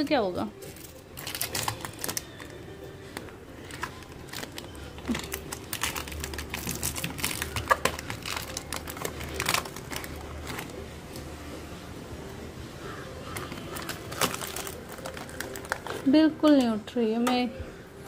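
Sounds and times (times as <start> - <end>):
plastic crinkling: 0.6 - 10.8, 13.3 - 16.2
ice crunching: 3.8 - 10.8, 13.3 - 16.1.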